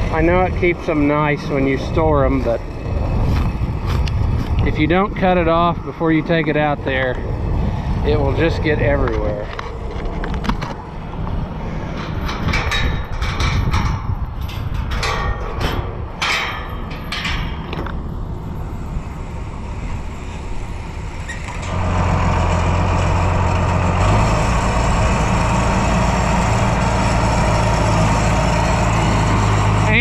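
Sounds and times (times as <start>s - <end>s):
diesel tractor engine running: 0.0s - 30.0s
sharp knocks and clatters: 11.9s - 18.0s.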